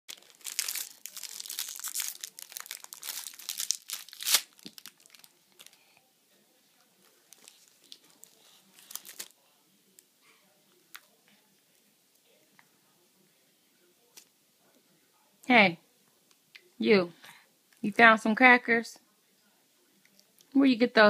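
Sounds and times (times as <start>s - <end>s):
plastic sleeve crinkling: 0.1s - 5.9s, 7.1s - 9.3s.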